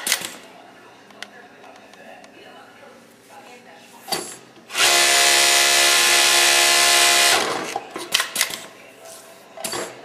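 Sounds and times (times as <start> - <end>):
sewing machine running: 4.7 - 7.8.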